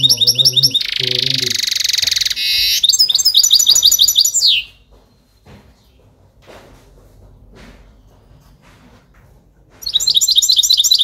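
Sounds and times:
goldfinch singing: 0.0s - 4.7s, 9.8s - 11.0s.

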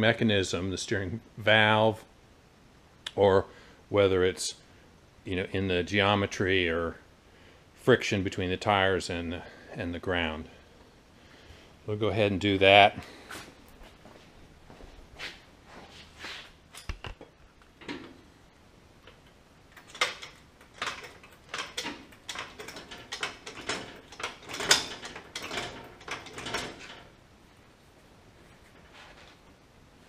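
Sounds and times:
floor jack metal clanks: 19.8s - 27.2s.

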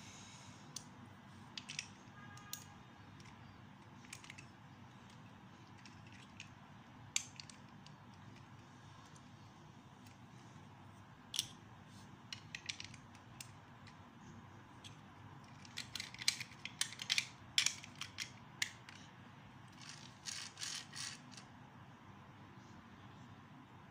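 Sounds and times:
plastic bricks clicking together: 1.6s - 4.5s, 7.2s - 8.6s, 12.3s - 14.0s, 14.8s - 19.1s, 19.7s - 21.4s.

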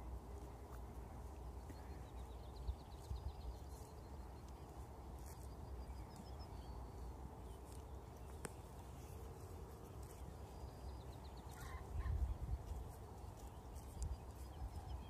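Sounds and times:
horse chewing grass: 0.0s - 2.3s, 2.9s - 15.0s
wind rumble on microphone: 5.6s - 15.0s.

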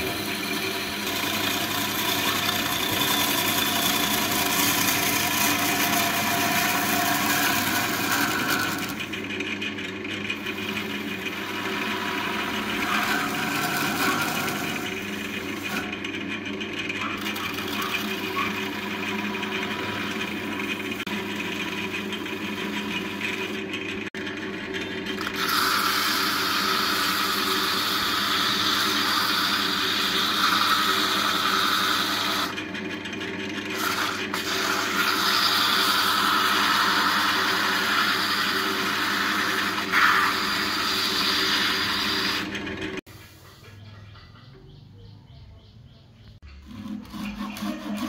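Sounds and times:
hollowing tool cutting wood: 0.0s - 43.1s, 46.4s - 48.0s
lathe motor humming: 0.0s - 43.1s, 46.4s - 48.0s
sandpaper hissing on spinning wood: 25.4s - 32.5s, 33.8s - 42.4s.

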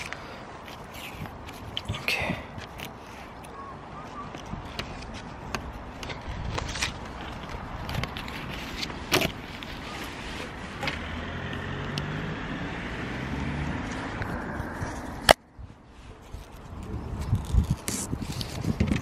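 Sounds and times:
vehicle engine humming: 7.0s - 15.4s.

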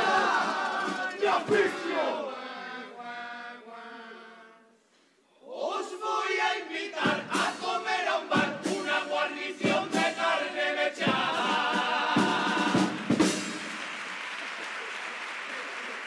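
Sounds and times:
audience applauding: 0.0s - 1.6s, 12.6s - 16.0s
men singing in harmony: 0.0s - 4.7s, 5.5s - 13.0s.

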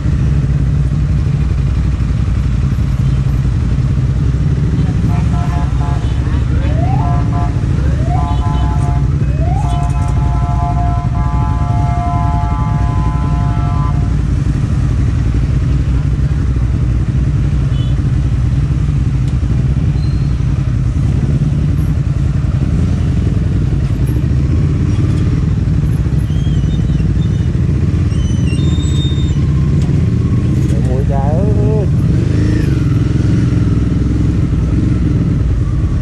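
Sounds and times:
motorbike engine idling: 0.0s - 36.0s
other motorbikes running: 0.0s - 36.0s
vehicle horn: 4.9s - 14.2s, 17.6s - 18.1s.

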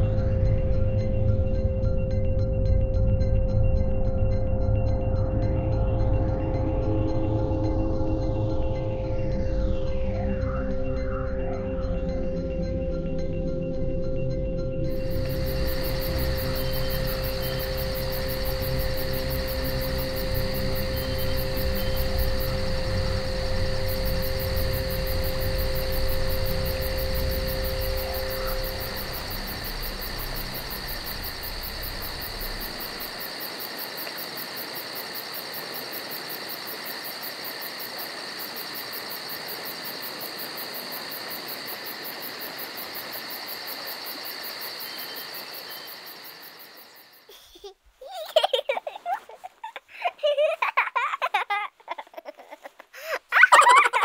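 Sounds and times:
steady background hiss: 14.2s - 54.0s
faint high whines: 14.9s - 33.5s.

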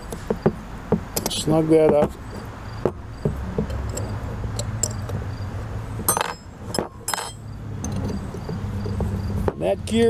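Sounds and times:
metal hand tools clinking: 6.1s - 8.3s.

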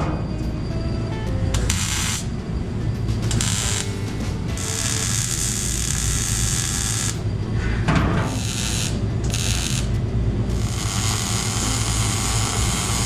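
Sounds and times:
welder crackling hiss: 1.6s - 2.3s, 3.3s - 7.3s, 8.3s - 9.9s, 10.5s - 13.0s.

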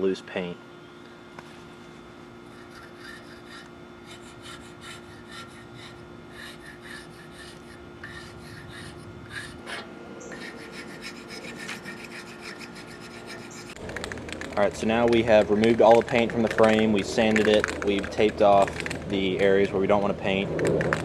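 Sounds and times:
plastic scraper rasping on metal: 2.5s - 9.6s, 10.3s - 14.5s.

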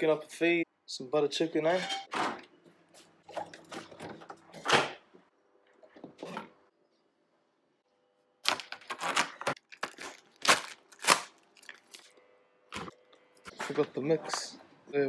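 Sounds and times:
plastic film ripping: 8.4s - 12.2s.

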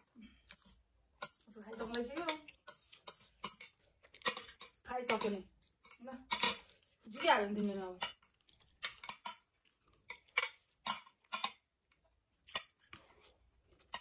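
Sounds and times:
metal chopsticks clicking on plates: 0.5s - 9.5s, 10.1s - 11.6s.

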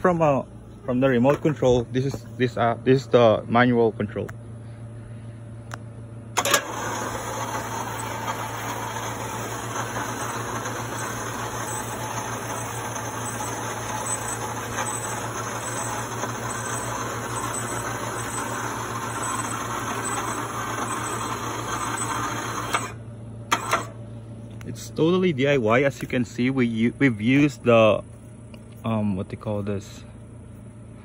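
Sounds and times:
electric winch motor running: 6.3s - 24.0s.

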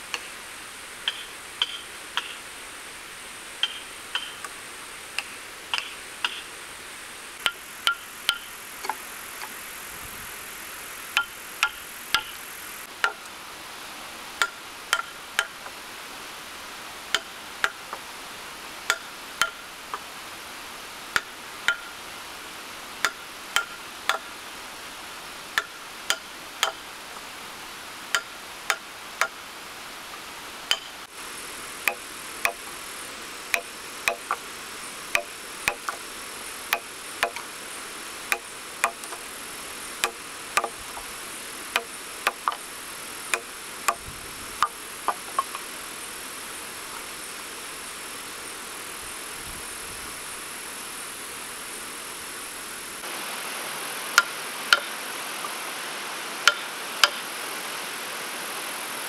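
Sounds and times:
hammer striking steel chisel: 1.0s - 2.4s, 3.6s - 4.5s, 5.2s - 6.5s, 7.4s - 9.0s, 11.2s - 12.4s, 13.0s - 13.3s, 14.4s - 15.6s, 17.1s - 17.8s, 18.9s - 19.6s, 21.2s - 22.0s, 23.0s - 24.3s, 25.6s - 26.8s, 28.1s - 29.4s, 30.7s - 31.0s, 31.8s - 32.6s, 33.5s - 34.4s, 35.1s - 36.0s, 36.7s - 37.5s, 38.3s - 39.2s, 40.0s - 41.0s, 41.7s - 42.6s, 56.4s - 57.2s.

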